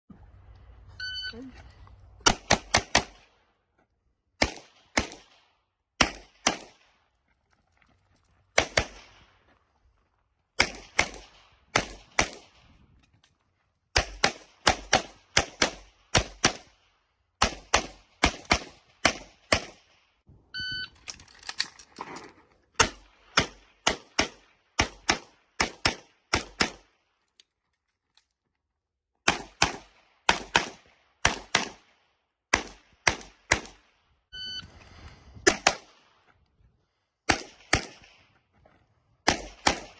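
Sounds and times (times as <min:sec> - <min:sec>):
short beep: 0:01.0 - 0:01.5, 0:20.5 - 0:21.0, 0:34.3 - 0:34.8.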